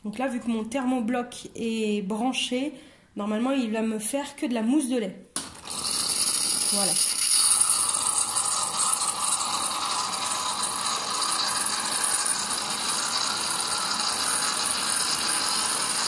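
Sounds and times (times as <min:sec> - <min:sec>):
steam hissing frothing milk: 0:05.6 - 0:16.0.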